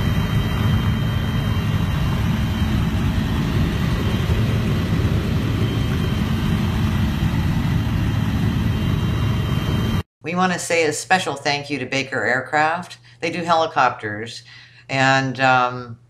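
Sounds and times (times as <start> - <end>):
helicopter engine and rotor: 0.0 - 10.1.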